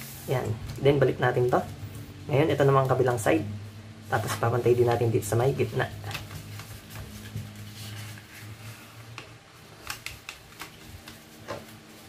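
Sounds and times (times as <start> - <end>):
paper folding and rustling: 5.6 - 12.0.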